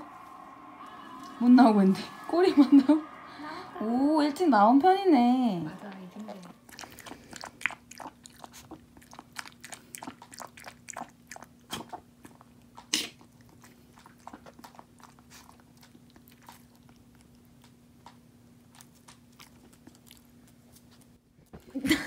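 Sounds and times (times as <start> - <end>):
puppy chewing and crunching food: 5.9 - 21.8.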